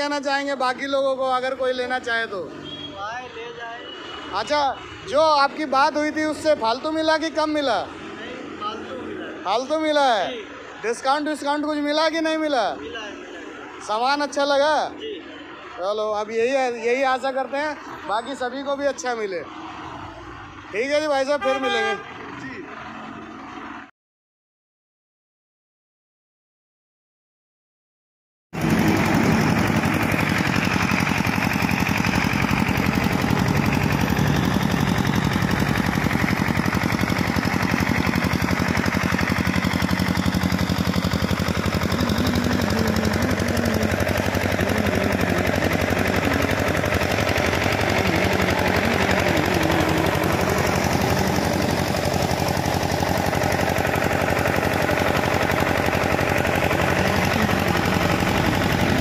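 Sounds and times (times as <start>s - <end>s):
air compressor running: 28.6s - 59.0s.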